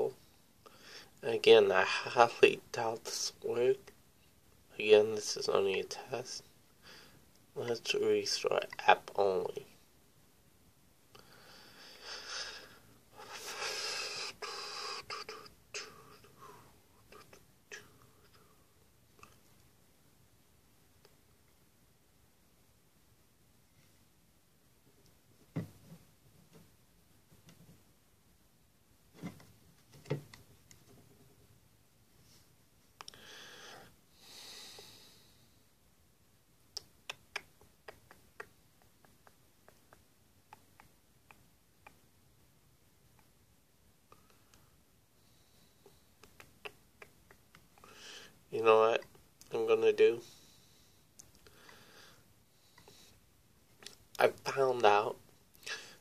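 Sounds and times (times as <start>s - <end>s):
person sniffing: 11.2s - 18.6s, 45.2s - 48.4s, 55.6s - 56.0s.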